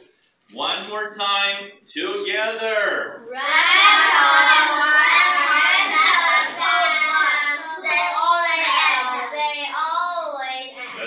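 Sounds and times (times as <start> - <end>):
children reading aloud in unison: 3.2 - 11.0.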